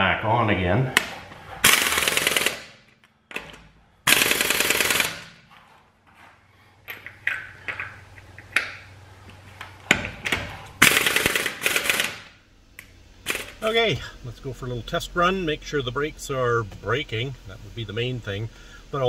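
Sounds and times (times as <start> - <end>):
air impact wrench rattling: 1.0 - 5.5, 9.9 - 12.4, 13.2 - 13.8.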